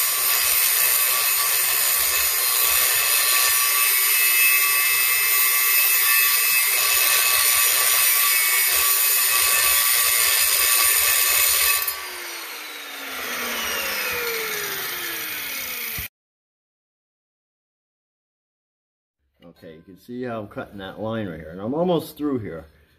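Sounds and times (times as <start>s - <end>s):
angle grinder grinding metal: 0.0s - 16.1s
motor winding down whine: 11.8s - 16.1s.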